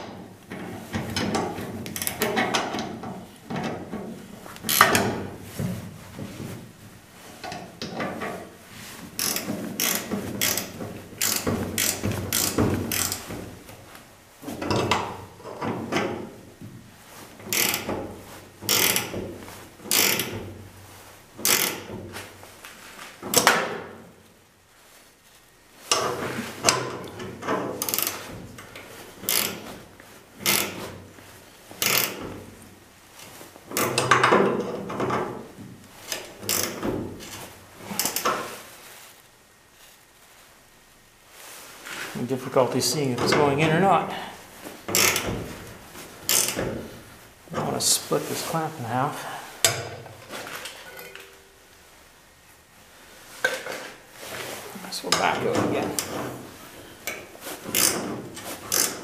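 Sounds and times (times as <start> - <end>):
ratcheting wrench clicking: 1.9 - 2.8, 4.7 - 5.1, 9.2 - 13.4, 17.5 - 18.0, 18.6 - 19.1, 19.9 - 20.4, 21.4 - 21.9, 27.8 - 28.2, 29.2 - 29.6, 31.8 - 32.2, 36.1 - 36.8, 44.9 - 45.3, 46.3 - 46.7, 57.0 - 58.1, 58.7 - 59.0.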